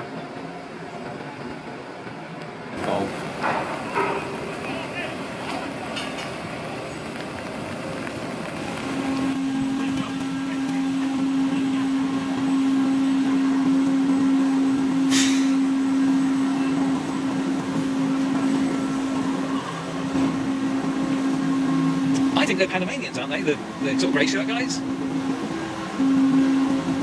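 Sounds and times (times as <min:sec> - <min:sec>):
machine hum: 0:08.3 - 0:27.0
short hiss: 0:15.1 - 0:15.6.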